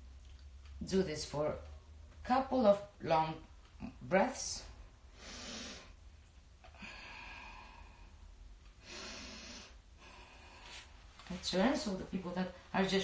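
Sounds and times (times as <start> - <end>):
woman breathing slowly: 5.0 - 11.3.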